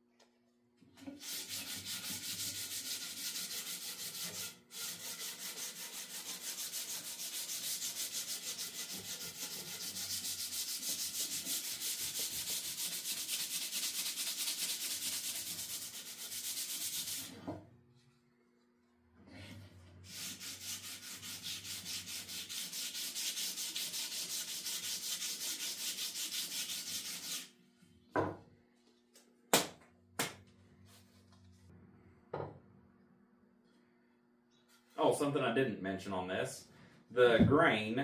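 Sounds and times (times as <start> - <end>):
sanding wood by hand: 1.2 - 17.4, 20.1 - 27.5.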